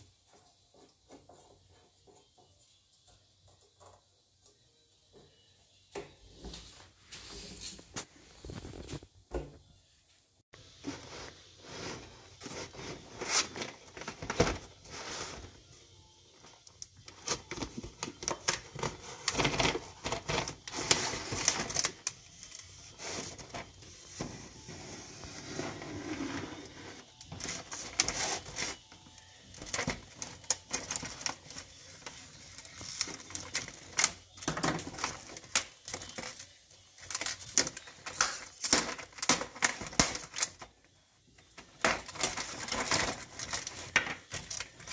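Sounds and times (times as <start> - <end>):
plastic packaging crackling: 16.6 - 24.7, 26.6 - 40.8, 41.4 - 44.9.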